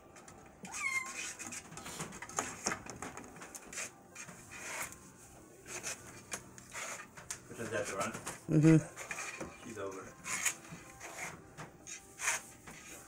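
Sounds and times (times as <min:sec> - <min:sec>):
kittens scrabbling and clawing: 0:00.2 - 0:05.0.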